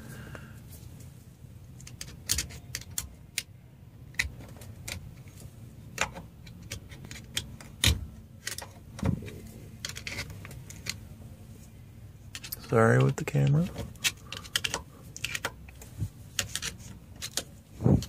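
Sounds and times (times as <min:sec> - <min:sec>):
screwdriver clicking and scraping metal: 0:01.7 - 0:03.5, 0:06.0 - 0:08.8, 0:09.8 - 0:11.0, 0:12.3 - 0:18.0.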